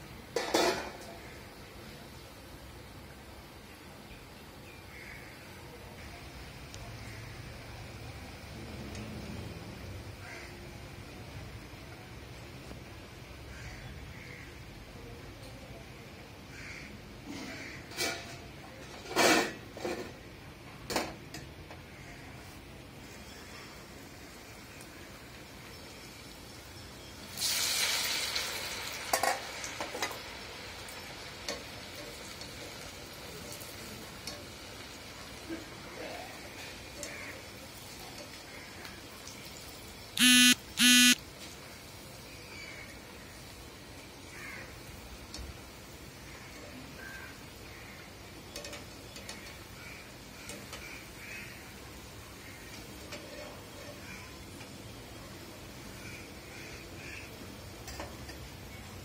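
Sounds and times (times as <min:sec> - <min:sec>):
food deep-frying in oil: 0:00.0 - 0:59.0
short bird calls: 0:40.2 - 0:41.2.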